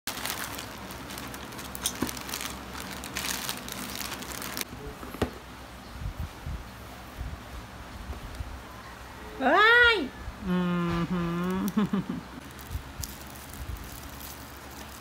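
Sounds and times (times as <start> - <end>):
plastic mailer bag crinkling: 0.0 - 4.7, 12.4 - 15.0.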